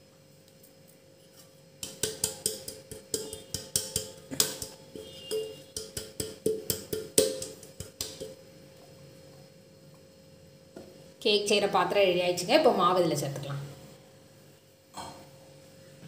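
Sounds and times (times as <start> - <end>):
metal cake tin knocking: 1.8 - 8.4.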